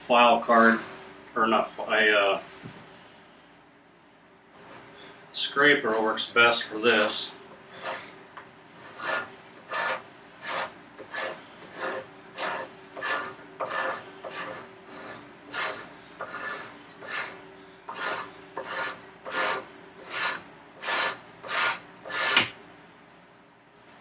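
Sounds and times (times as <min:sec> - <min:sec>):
card scraper scraping wood: 0:07.7 - 0:08.1, 0:08.8 - 0:22.6.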